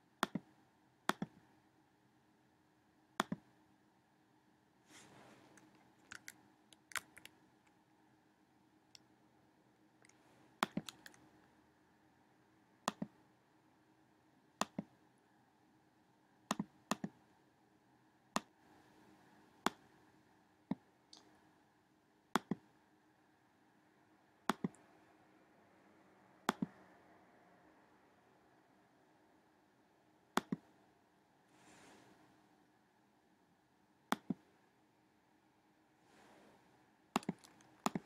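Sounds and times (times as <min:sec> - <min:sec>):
faint steady hum: 0:00.0 - 0:38.0
mouse button clicks: 0:26.5 - 0:26.7.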